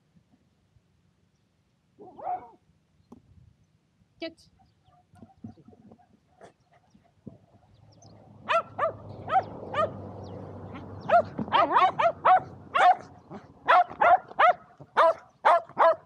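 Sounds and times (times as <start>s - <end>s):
dogs barking in high yaps: 2.0s - 2.6s, 8.4s - 10.1s, 10.7s - 16.0s.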